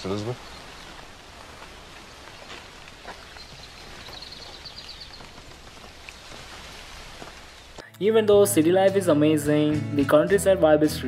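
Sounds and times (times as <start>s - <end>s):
outdoor ambience hiss: 0.0s - 7.9s.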